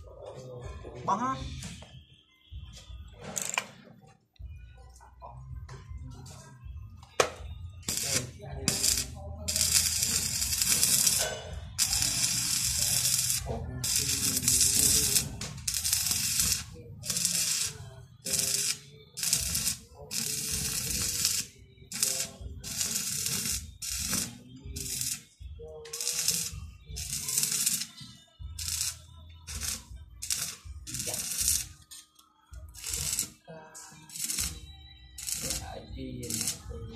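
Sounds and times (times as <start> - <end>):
welding arc crackling and hissing: 7.9 - 11.2, 11.8 - 25.2, 25.9 - 27.9, 28.6 - 31.8, 32.8 - 33.4, 34.1 - 34.6, 35.2 - 36.6.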